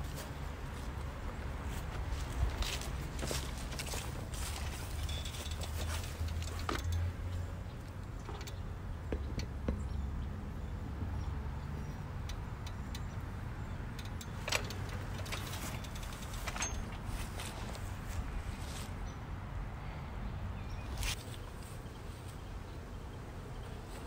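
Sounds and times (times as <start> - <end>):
low outdoor rumble: 0.0 - 24.0
light clicks and clinks: 2.6 - 8.6, 12.2 - 17.8.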